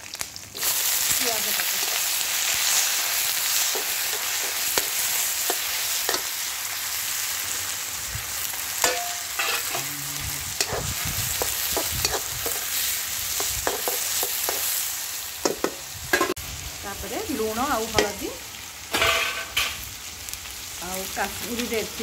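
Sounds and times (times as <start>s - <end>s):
onions sizzling in hot oil: 0.0s - 22.0s
ladle scraping a pan: 8.8s - 9.9s.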